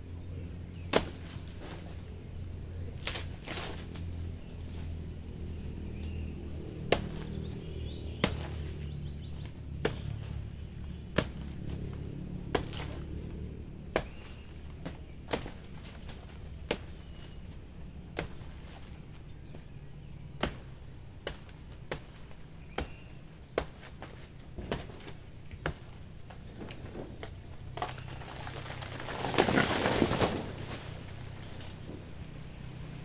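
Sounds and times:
leaves rustling: 0.0 - 33.0.

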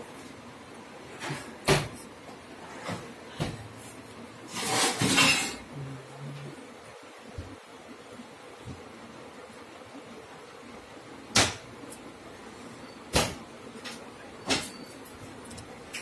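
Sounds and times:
metal drawer scraping rattle: 4.5 - 5.6.

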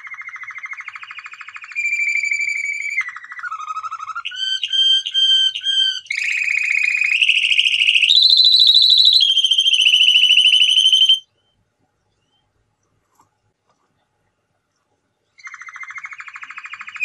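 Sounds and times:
canary singing: 0.0 - 11.6, 15.4 - 17.0.

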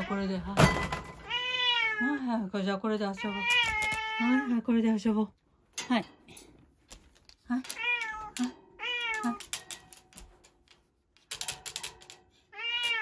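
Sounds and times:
cat meowing: 1.2 - 2.2, 3.2 - 4.6, 7.7 - 9.6, 12.5 - 13.0.

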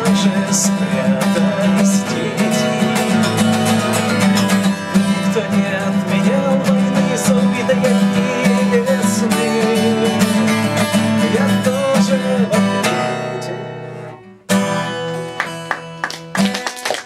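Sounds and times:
acoustic guitar strumming: 0.0 - 17.0
hand clapping: 15.1 - 17.0.

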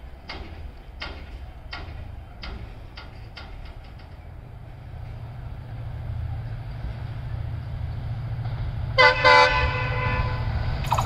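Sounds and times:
diesel locomotive rumble: 0.0 - 11.0
locomotive horn blasts: 9.0 - 10.6.

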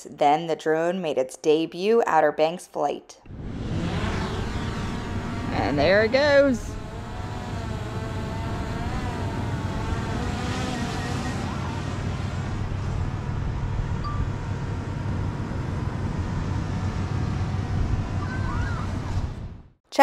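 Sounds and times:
drone propellers whining: 3.2 - 19.7
wind and surf rumble: 3.3 - 10.5, 11.1 - 19.8.

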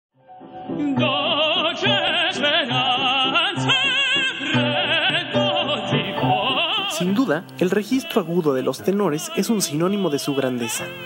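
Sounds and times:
opera singing with vibrato: 0.6 - 11.0
orchestral accompaniment: 3.7 - 11.0.

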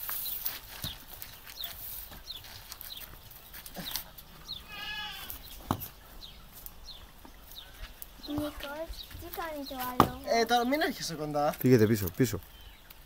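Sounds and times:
wavering animal cry: 4.6 - 5.4.

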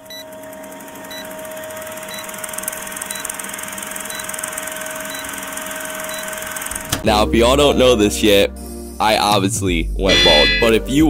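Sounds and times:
short high beeps: 10.1 - 10.8.

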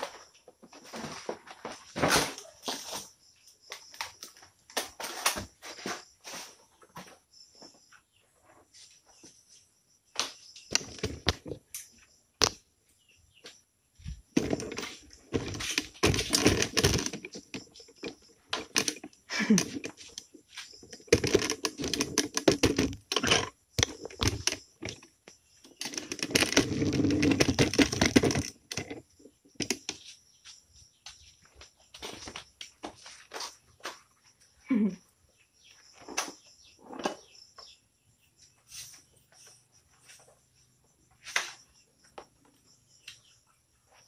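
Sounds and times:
parts clicking and rattling: 10.7 - 12.6, 14.3 - 30.2
clatter: 25.8 - 29.0.

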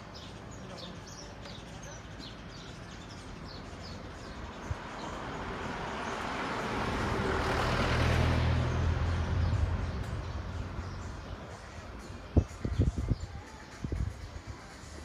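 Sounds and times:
vehicle passing by: 3.8 - 11.7.

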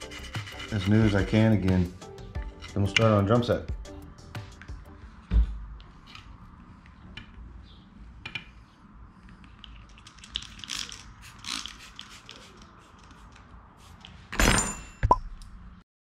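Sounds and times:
cloth rubbing on metal: 0.0 - 1.9.

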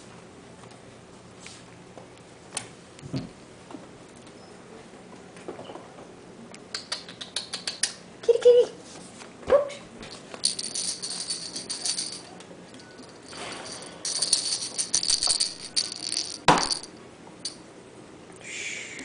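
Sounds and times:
jingling cat toy shaken: 10.1 - 17.6.

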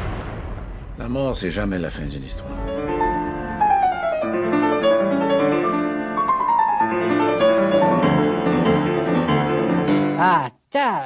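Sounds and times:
classical piano music: 2.6 - 10.2.

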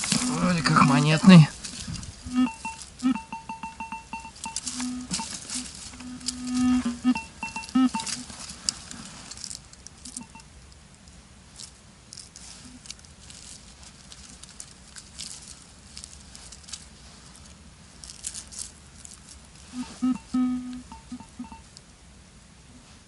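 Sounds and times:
soil and leaves rustling: 0.0 - 23.0
metal detector beeps: 2.3 - 8.2, 10.1 - 10.5, 19.7 - 21.7.

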